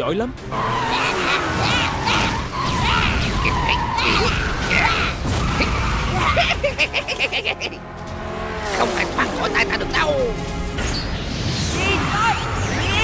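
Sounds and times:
dramatic music: 0.0 - 13.0
character laughing: 0.8 - 7.9.

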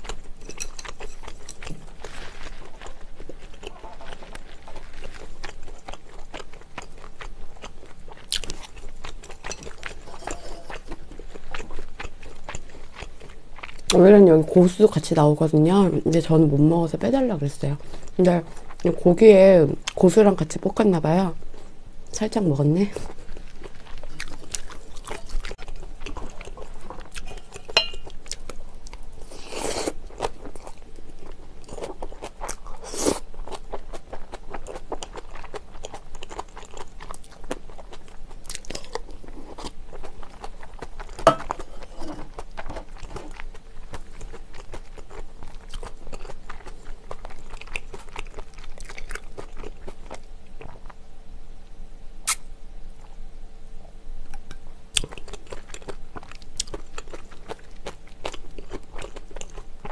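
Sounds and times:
chewing and crunching: 0.0 - 15.2, 22.6 - 51.0, 54.3 - 59.9
utensils clinking on metal dishes: 9.5 - 10.8, 27.2 - 28.1.

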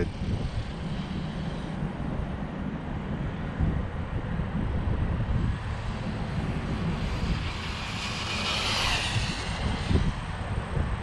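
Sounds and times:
low wind rumble on microphone: 0.0 - 11.0
electric motor whining: 5.6 - 10.9.

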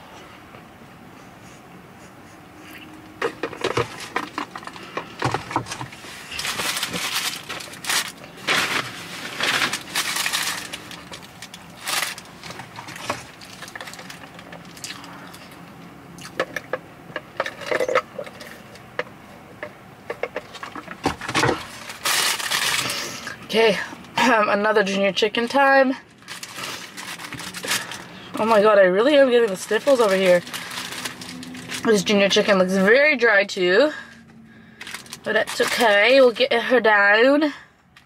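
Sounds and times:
paper wrapper crinkling: 5.9 - 15.2, 21.6 - 23.3, 26.1 - 28.1, 29.4 - 32.0, 34.8 - 36.0.

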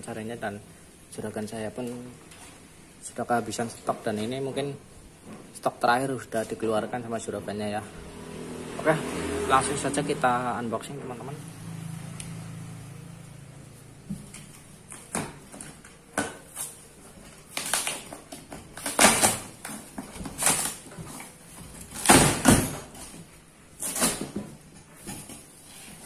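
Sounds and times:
cardboard box being torn open: 17.5 - 20.9.

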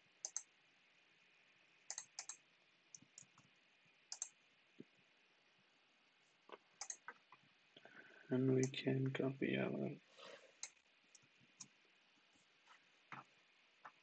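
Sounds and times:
low steady hiss: 0.0 - 14.0
computer mouse and keyboard clicks: 0.2 - 0.5, 1.9 - 3.5, 4.1 - 4.4, 6.8 - 7.2.

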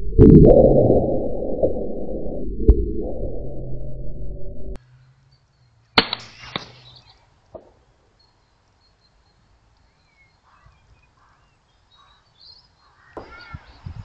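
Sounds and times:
bird chirps: 5.0 - 7.3, 8.0 - 14.0.

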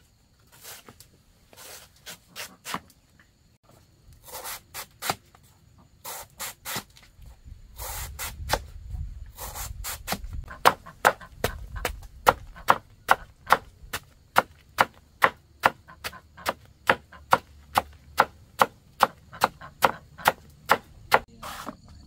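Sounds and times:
knife chopping on wooden block: 12.3 - 15.8, 16.4 - 21.3.

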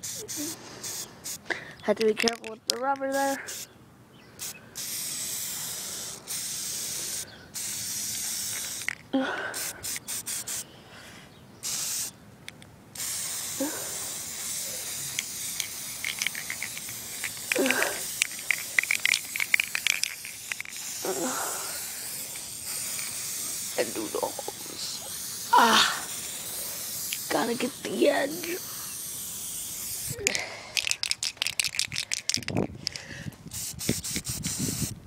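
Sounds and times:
spray paint can hissing: 0.0 - 3.7, 4.4 - 9.0, 9.6 - 10.7, 11.6 - 35.0
crackling clicks: 15.1 - 20.8, 30.3 - 33.1.

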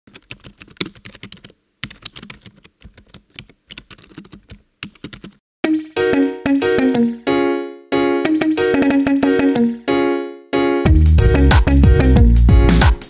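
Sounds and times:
rapid keyboard typing: 0.1 - 5.4.

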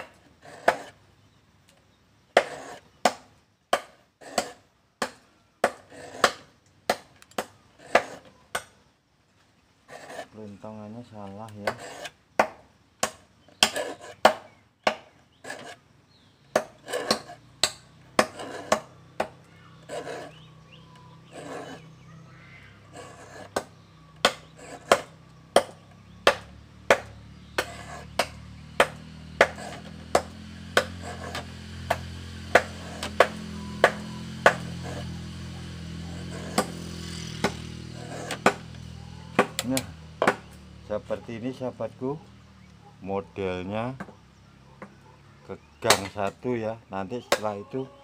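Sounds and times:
file scraping saw teeth: 0.0 - 1.0, 2.3 - 3.0, 4.2 - 8.7, 9.9 - 12.2, 13.0 - 15.8, 16.5 - 41.6.

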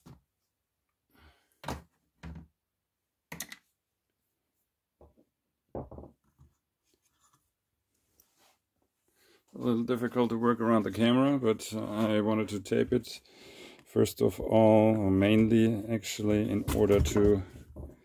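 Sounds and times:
knocks on wooden workbench: 5.7 - 6.1.

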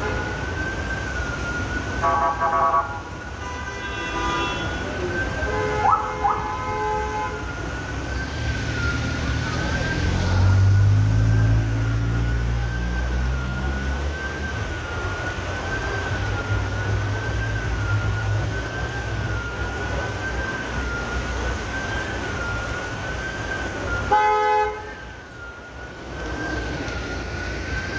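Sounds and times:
wavering warning siren: 0.0 - 3.4, 4.5 - 27.9
wet traffic: 0.0 - 27.9
car horn toot: 2.0 - 4.8, 24.1 - 24.9.

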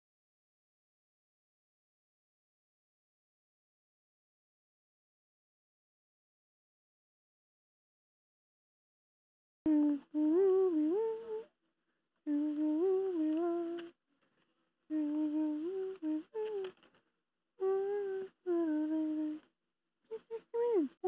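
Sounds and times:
person humming a tune: 9.7 - 11.5, 12.3 - 13.9, 14.9 - 16.8, 17.6 - 19.5, 20.1 - 21.0.

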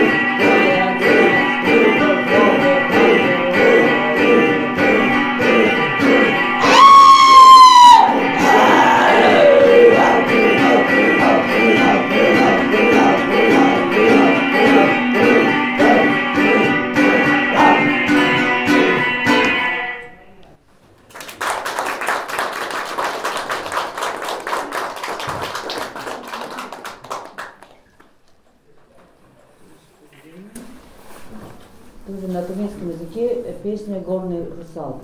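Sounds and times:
folk song with plucked balalaika: 10.0 - 20.1
audience applauding: 21.1 - 28.0.

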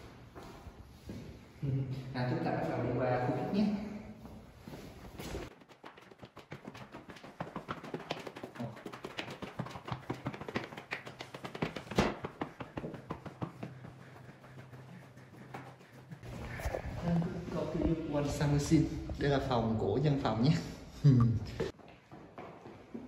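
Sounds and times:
footsteps on tiled floor: 0.0 - 1.5, 4.2 - 19.4, 21.6 - 23.0.

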